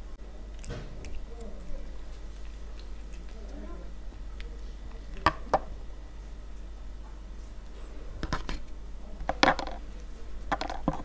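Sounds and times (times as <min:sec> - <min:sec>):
wooden plate clicks and knocks: 0:10.5 - 0:11.0.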